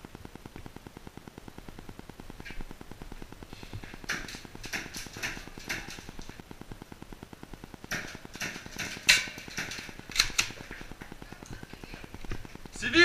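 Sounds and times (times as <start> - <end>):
rapid buzzing interference: 0.0 - 13.0
sharp clicks and taps: 3.8 - 6.4, 7.8 - 12.8.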